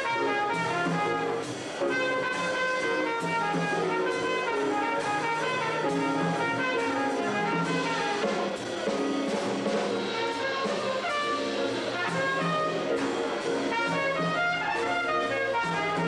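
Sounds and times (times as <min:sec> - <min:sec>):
small band accompaniment: 0:00.0 - 0:16.0
trumpet playing jazz melody: 0:00.0 - 0:16.0.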